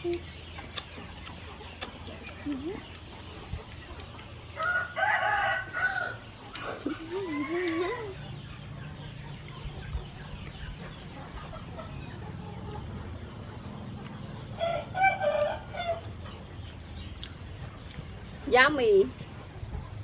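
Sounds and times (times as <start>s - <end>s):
chickens clucking: 0.0s - 20.0s
rooster crowing: 4.6s - 6.2s.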